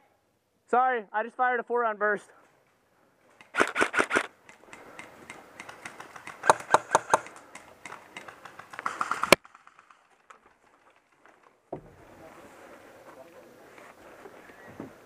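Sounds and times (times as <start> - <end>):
airsoft guns firing: 3.4 - 9.6.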